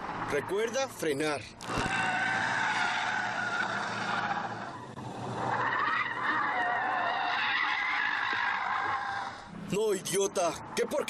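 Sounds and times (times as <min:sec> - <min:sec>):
tyres squealing: 0:01.6 - 0:04.9.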